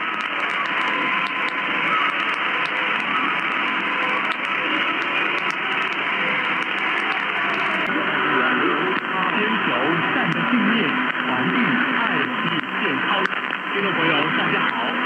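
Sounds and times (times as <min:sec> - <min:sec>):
radio hiss: 0:00.0 - 0:15.0
static crackles: 0:00.0 - 0:15.0.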